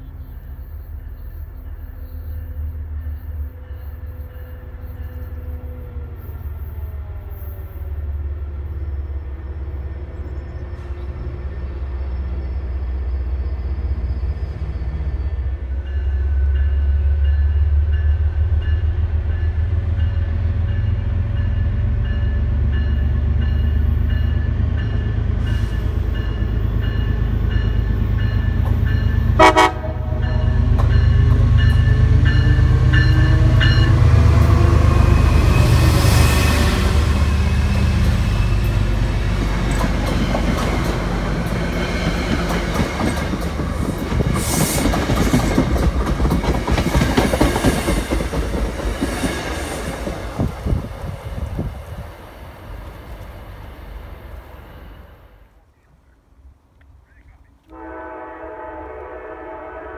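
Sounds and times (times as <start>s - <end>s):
train wheel and rail noise: 0.0s - 59.9s
train horn blast: 28.4s - 39.0s, 57.7s - 59.9s.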